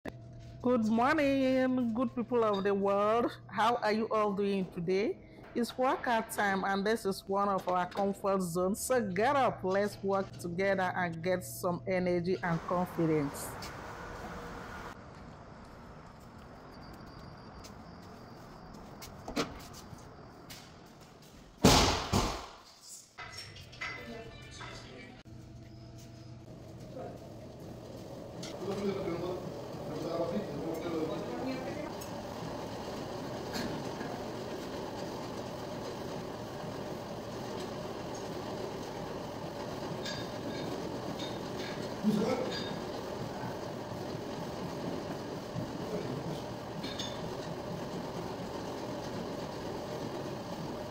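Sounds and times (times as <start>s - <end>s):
footsteps on treadmill: 14.9s - 21.6s, 25.4s - 50.9s
door slamming shut: 21.6s - 22.6s
treadmill motor and belt rumble: 25.4s - 50.9s.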